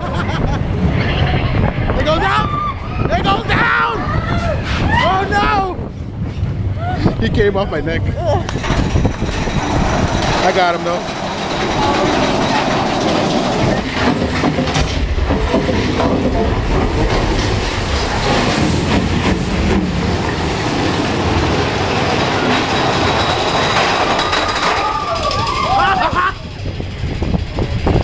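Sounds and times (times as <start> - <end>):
ride train rumbling on track: 0.0 - 28.0
cars rattling and clattering: 6.5 - 28.0.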